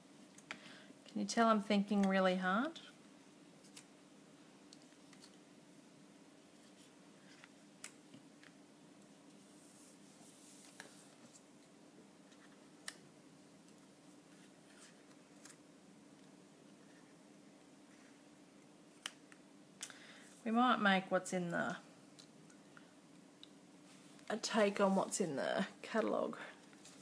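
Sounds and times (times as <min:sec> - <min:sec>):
faint room hum: 0:00.0 - 0:27.0
paper cutouts rustling: 0:04.7 - 0:05.5.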